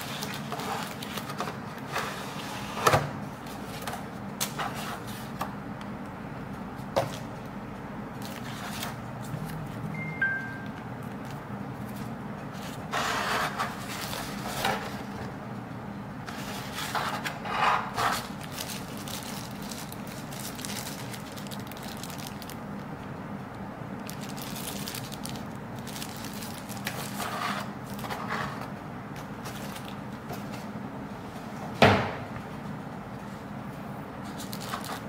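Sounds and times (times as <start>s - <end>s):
wrapping sheet crinkling: 0.0s - 1.9s, 11.1s - 15.1s, 16.3s - 22.9s, 24.0s - 28.3s, 34.3s - 35.0s.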